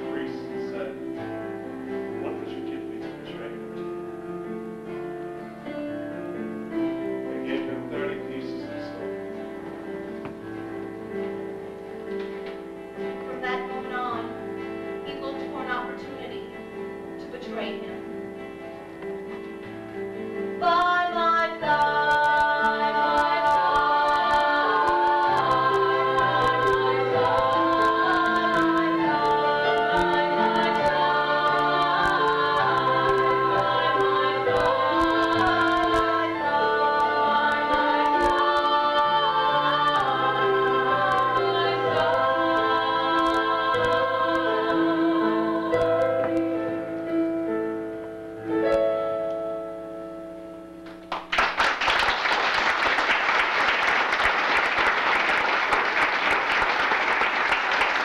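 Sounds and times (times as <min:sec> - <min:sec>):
instrumental accompaniment: 0:00.0 - 0:51.5
women singing in harmony: 0:20.6 - 0:46.9
audience applause: 0:50.9 - 0:58.0.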